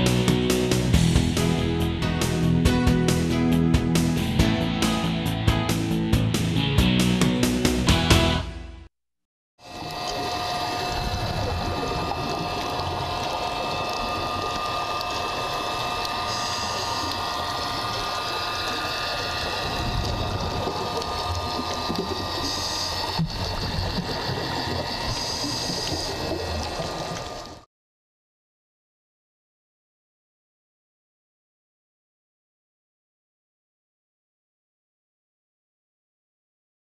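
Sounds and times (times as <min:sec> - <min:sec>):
regulator bubbles: 0:09.6 - 0:27.6
underwater motor whine: 0:09.6 - 0:27.7
hiss: 0:12.2 - 0:27.2.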